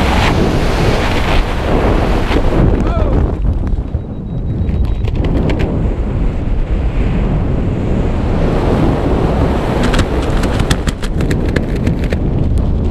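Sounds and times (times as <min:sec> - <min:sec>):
wind buffeting microphone: 0:00.0 - 0:12.9
fabric flapping and rustling: 0:09.8 - 0:12.2.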